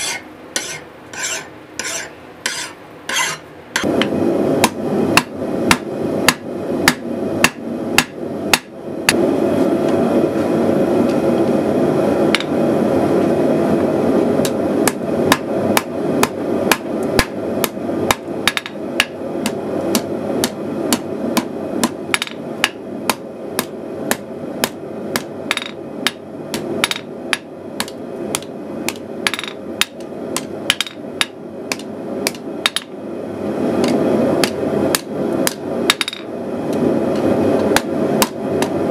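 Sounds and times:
hammer striking steel on anvil: 0.0s - 8.7s, 14.4s - 32.9s.

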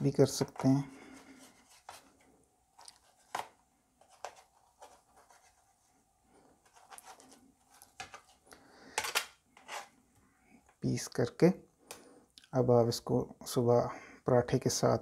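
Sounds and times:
knife scraping a ceramic plate: 9.6s - 9.9s.

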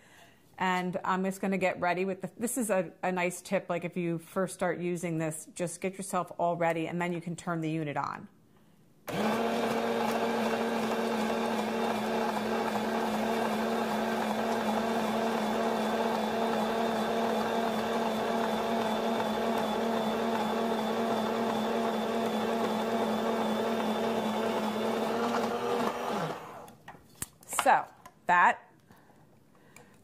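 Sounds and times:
electric slicer motor humming: 9.1s - 26.8s.

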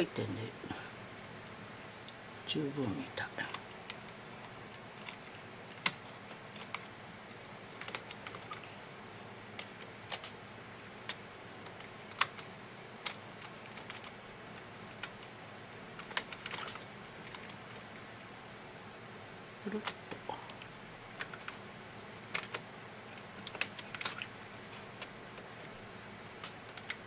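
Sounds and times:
knitting machine needles clicking: 11.0s - 15.3s, 16.0s - 18.0s, 22.3s - 27.0s.

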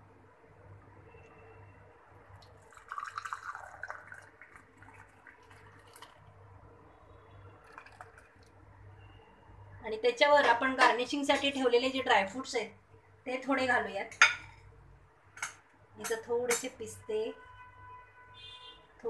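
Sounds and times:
milk pouring into glass: 2.3s - 6.4s, 7.3s - 8.5s.

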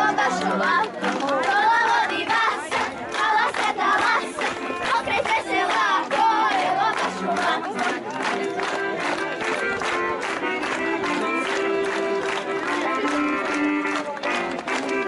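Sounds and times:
girls singing folk song: 0.0s - 8.2s.

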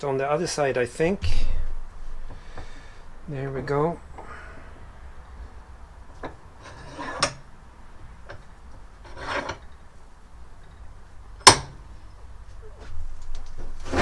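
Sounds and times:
rubbing scrape: 6.6s - 7.3s, 9.0s - 9.6s, 13.8s - 14.0s.

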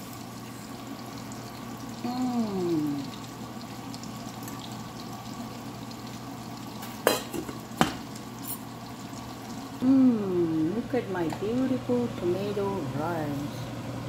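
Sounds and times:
person humming: 2.0s - 3.1s, 9.8s - 10.7s
steel lid clanking on pot: 7.0s - 7.6s.

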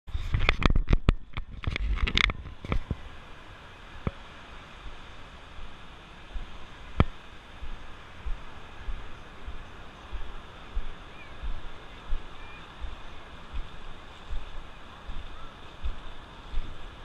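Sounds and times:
wind: 0.0s - 17.0s
surf: 0.1s - 17.0s
camera handling clatter: 0.3s - 2.8s.

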